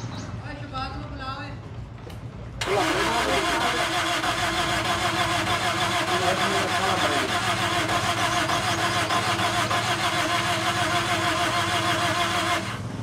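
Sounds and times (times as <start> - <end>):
car engine running: 2.6 - 13.0.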